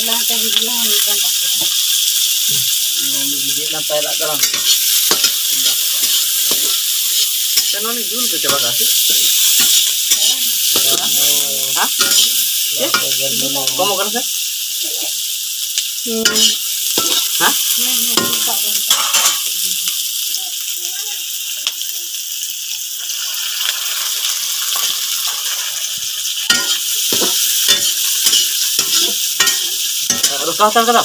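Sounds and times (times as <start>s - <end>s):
onions sizzling in a wok: 0.0s - 31.0s
metal spatula scraping a pan: 4.3s - 14.1s, 16.2s - 19.5s, 24.8s - 31.0s.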